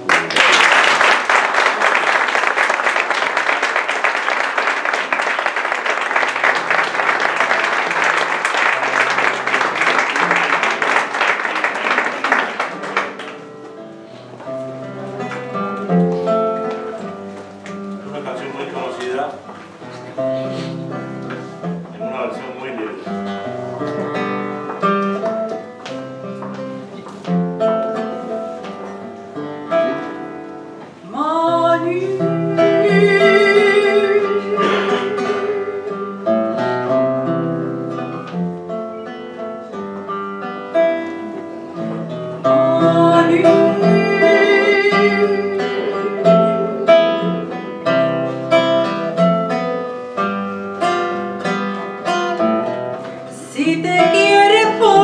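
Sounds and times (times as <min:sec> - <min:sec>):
fingerstyle nylon-string guitar: 0:12.7 - 0:55.0
woman singing with vibrato: 0:31.1 - 0:36.2, 0:42.5 - 0:47.2, 0:53.3 - 0:55.0.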